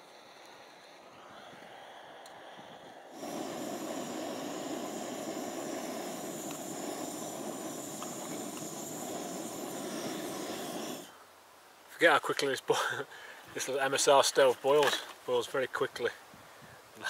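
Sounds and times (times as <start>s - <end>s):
gas stove burner hissing: 0.0s - 11.2s.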